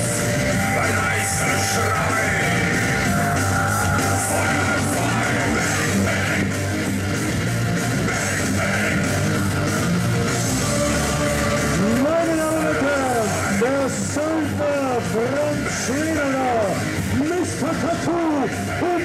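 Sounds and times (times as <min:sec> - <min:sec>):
rock music with electric guitar: 0:00.0 - 0:19.0.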